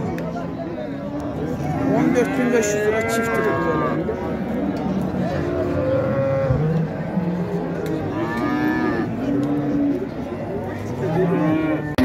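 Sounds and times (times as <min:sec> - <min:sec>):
cattle mooing: 0:01.8 - 0:04.0, 0:05.4 - 0:10.1, 0:11.0 - 0:12.0.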